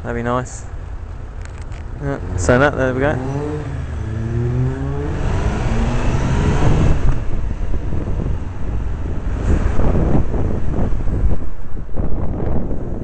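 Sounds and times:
wind noise on microphone: 0:01.3 - 0:13.0
motorcycle engine revving: 0:01.8 - 0:11.6.

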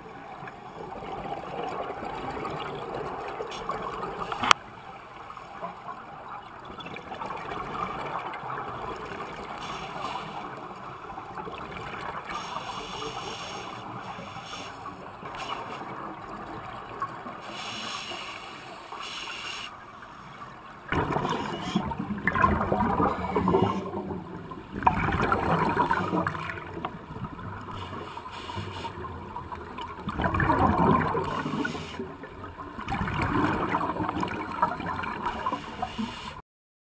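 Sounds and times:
exhaled air bubbling underwater: 0:05.8 - 0:36.4
steady hiss: 0:09.6 - 0:10.6, 0:12.3 - 0:15.8, 0:17.4 - 0:19.7, 0:27.7 - 0:29.0, 0:31.4 - 0:32.0, 0:35.3 - 0:36.4.

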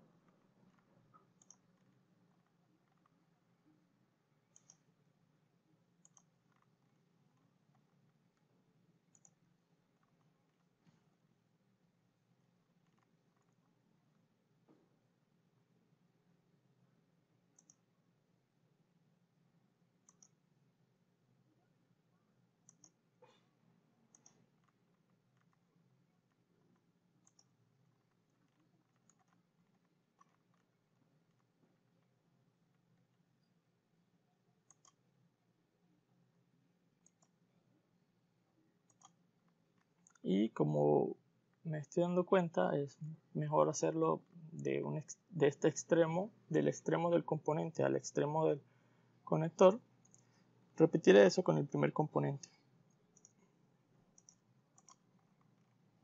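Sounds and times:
computer mouse clicks: 0:00.2 - 0:03.2, 0:04.5 - 0:04.9, 0:06.0 - 0:08.5, 0:09.1 - 0:10.7, 0:12.8 - 0:13.7, 0:17.5 - 0:17.9, 0:20.0 - 0:20.4, 0:22.6 - 0:23.0, 0:24.1 - 0:25.6, 0:26.2 - 0:31.5, 0:34.6 - 0:35.1, 0:37.0 - 0:37.4, 0:38.8 - 0:40.3, 0:50.0 - 0:50.4, 0:52.4 - 0:53.5, 0:54.1 - 0:55.8.

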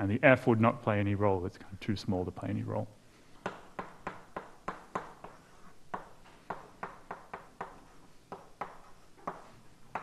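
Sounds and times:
chalk tapping and scraping on blackboard: 0:03.3 - 0:10.0.

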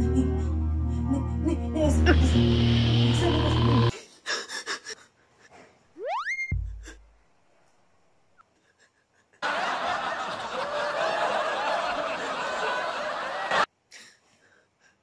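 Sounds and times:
laugh track: 0:08.4 - 0:13.7.

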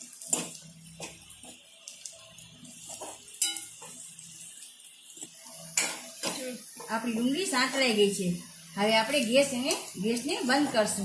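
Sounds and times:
faint sizzle of frying: 0:00.0 - 0:11.0
spoon scraping and clinking on pan: 0:02.9 - 0:04.0.

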